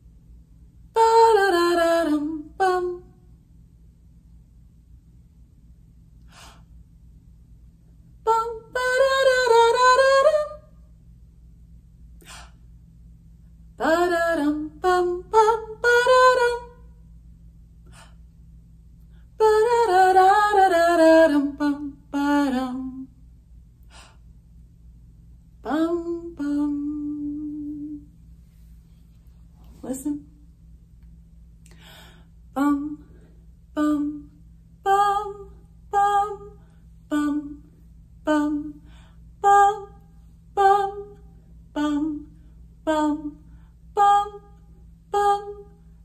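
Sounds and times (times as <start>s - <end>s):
woman singing wordless tune: 0.9s - 3.3s, 8.2s - 10.8s, 13.8s - 16.9s, 19.4s - 23.2s, 25.6s - 28.2s, 29.6s - 30.5s, 32.5s - 45.9s.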